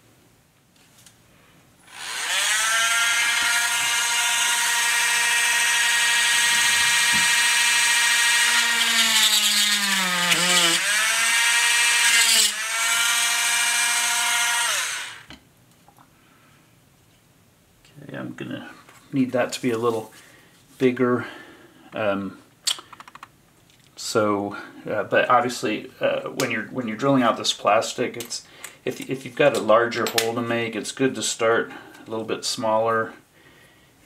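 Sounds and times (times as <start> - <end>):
rotary tool drilling plastic: 1.9 - 15.3.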